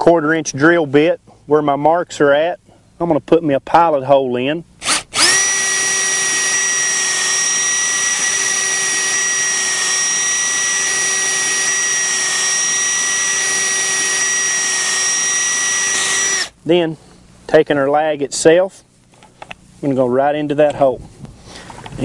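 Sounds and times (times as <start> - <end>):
cordless drill motor whine: 4.8 - 16.6.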